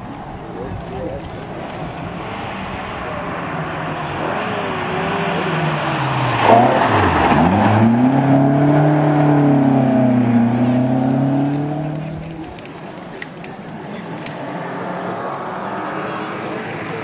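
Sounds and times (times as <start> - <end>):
rally car engine passing by: 1.8 - 12.6, 14.3 - 17.0.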